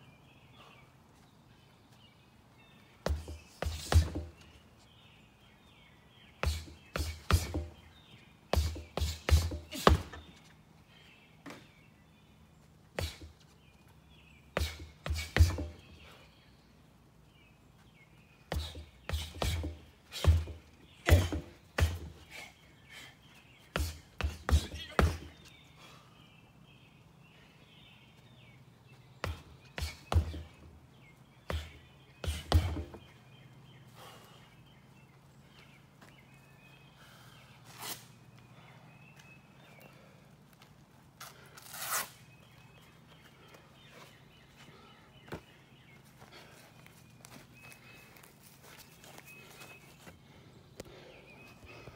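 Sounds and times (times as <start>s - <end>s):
boxing gloves punching tires: 3.0s - 4.5s, 6.4s - 7.9s, 8.5s - 10.4s, 14.6s - 15.9s, 18.5s - 22.4s, 23.8s - 25.4s, 29.2s - 30.7s, 31.5s - 33.1s.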